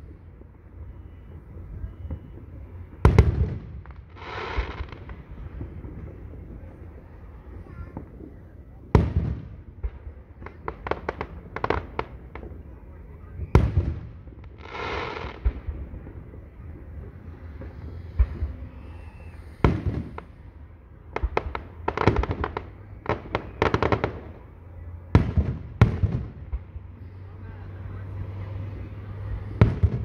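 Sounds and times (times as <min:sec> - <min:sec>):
firework booms: 0:00.9 - 0:26.9, 0:29.4 - 0:30.0
firework crackling pops: 0:02.1 - 0:12.8, 0:13.4 - 0:16.5, 0:17.2 - 0:20.5, 0:21.1 - 0:24.5, 0:25.2 - 0:26.9.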